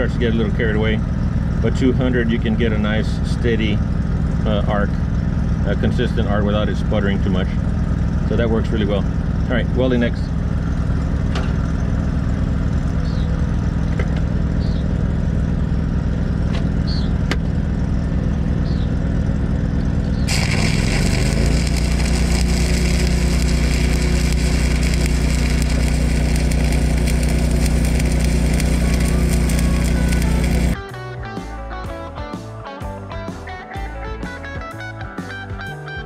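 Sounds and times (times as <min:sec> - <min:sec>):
welding machine engine running: 0:00.0 - 0:30.8
crackle and hiss of stick welding: 0:20.3 - 0:30.8.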